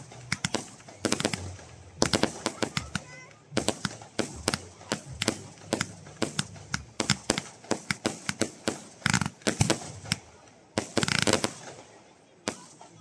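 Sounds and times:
fireworks bangs and cracks: 0.0s - 13.0s.

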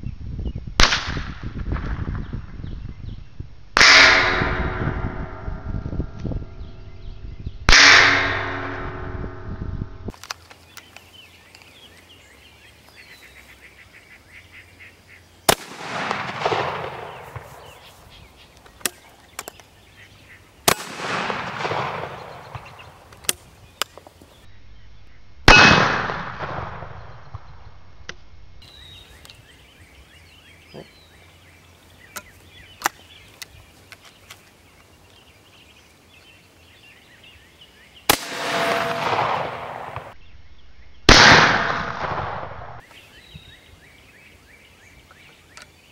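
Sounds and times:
rifle shots: 7.7s - 8.8s, 15.5s - 17.8s, 20.7s - 23.4s, 25.5s - 27.1s, 38.1s - 40.2s, 41.1s - 42.8s
birds chirping faintly: 10.1s - 15.5s, 16.9s - 20.7s, 22.0s - 25.4s, 28.6s - 38.2s.

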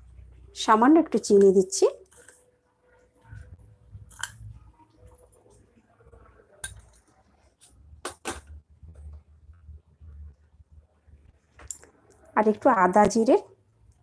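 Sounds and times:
soft low rumble: 8.6s - 11.6s.

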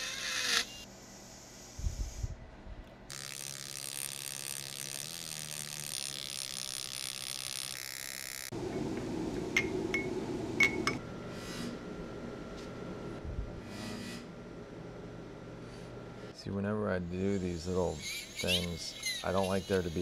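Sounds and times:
rotary tool grinding metal: 0.0s - 0.8s, 3.1s - 8.5s, 17.2s - 20.0s.

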